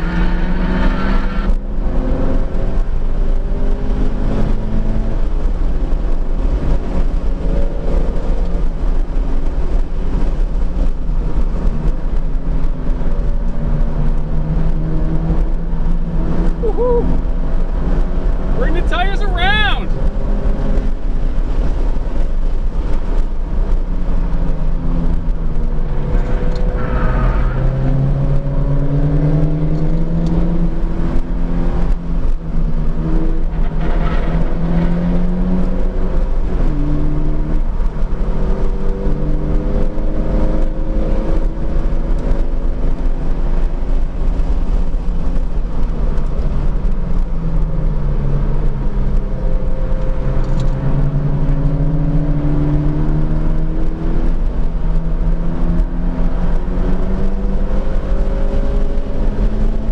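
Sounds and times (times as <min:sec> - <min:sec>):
car engine revving through gears: 0:00.0 - 0:59.9
road and wind noise: 0:00.0 - 0:59.9.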